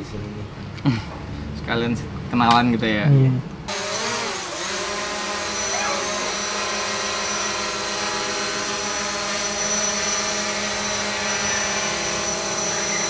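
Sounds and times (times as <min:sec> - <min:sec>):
drone propellers whining: 0:03.7 - 0:13.0.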